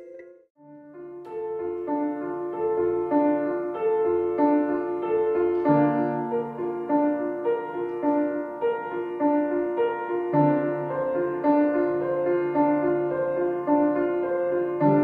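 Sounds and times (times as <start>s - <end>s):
gentle piano music: 0.0s - 15.0s.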